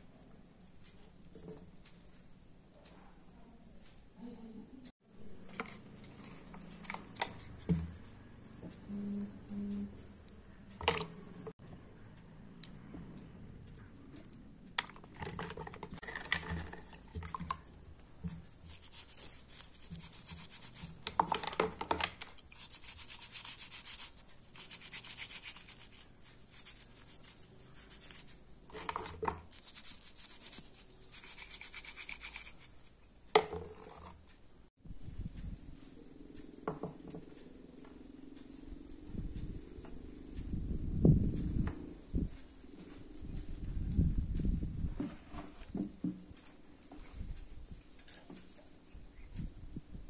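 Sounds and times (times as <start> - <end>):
brush scrubbing plastic: 15.2 - 21.3, 22.5 - 33.0.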